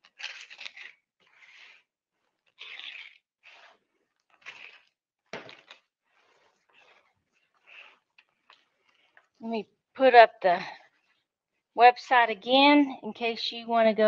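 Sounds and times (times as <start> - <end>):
packing tape tearing: 0.0 - 1.9, 2.5 - 5.8.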